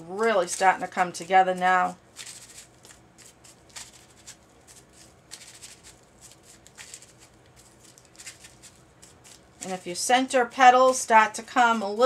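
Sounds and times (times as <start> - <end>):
paper crinkling and rustling: 2.1 - 9.8.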